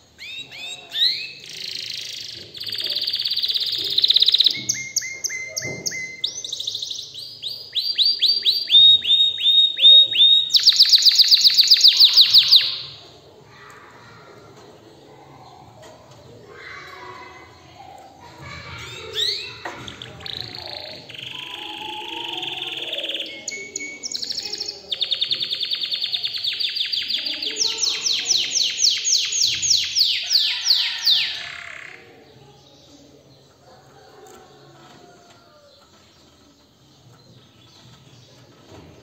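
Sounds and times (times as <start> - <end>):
canary singing trills: 0.1 - 13.7, 16.5 - 33.6.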